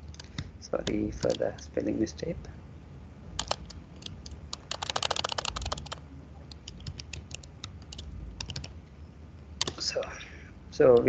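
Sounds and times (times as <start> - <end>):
typing on computer keyboard: 0.0 - 1.4, 3.4 - 8.7.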